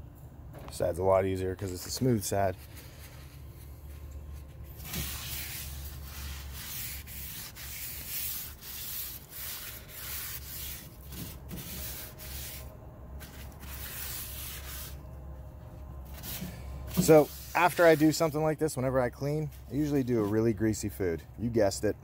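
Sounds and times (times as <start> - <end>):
paper towel rubbing on griddle: 1.8 - 15.0, 16.1 - 18.6, 19.4 - 20.6.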